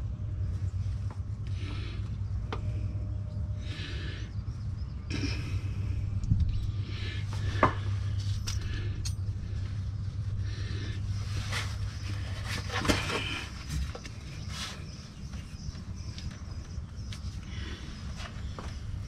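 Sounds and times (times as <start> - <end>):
steady low hum: 0.0 - 19.0
scraping and rustling: 7.4 - 15.6.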